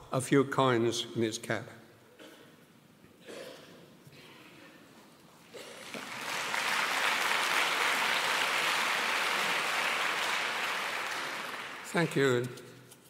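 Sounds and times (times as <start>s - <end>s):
audience applauding: 5.6s - 12.6s.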